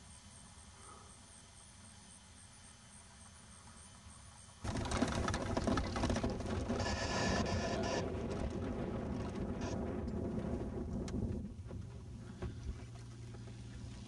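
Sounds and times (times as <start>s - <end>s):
wind buffeting microphone: 4.7s - 13.2s.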